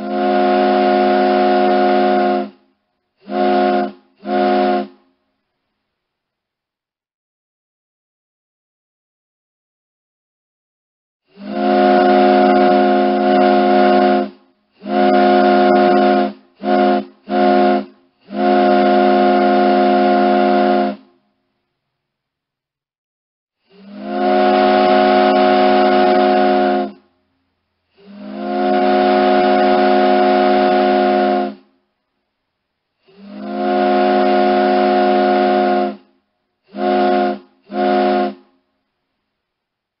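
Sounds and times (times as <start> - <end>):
ship's horn blasts: 0.0 - 5.1, 11.3 - 21.2, 23.7 - 27.1, 28.0 - 31.7, 33.1 - 38.6.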